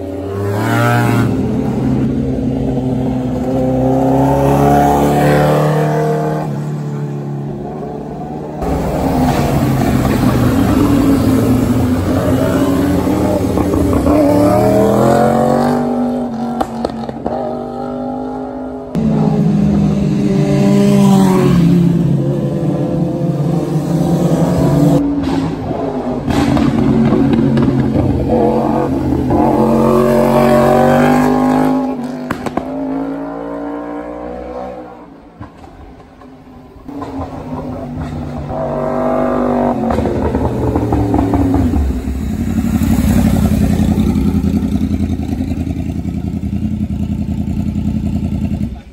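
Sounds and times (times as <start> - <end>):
motorcycles accelerating: 0.0 - 48.9
motorcycle revving past: 36.9 - 48.8
motorcycle engine running deep: 39.7 - 48.9.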